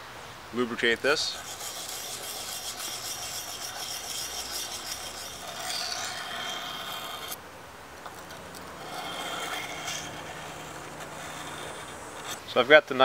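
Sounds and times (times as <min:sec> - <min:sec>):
knife scraping on whetstone: 0:01.1 - 0:07.4, 0:08.0 - 0:12.4.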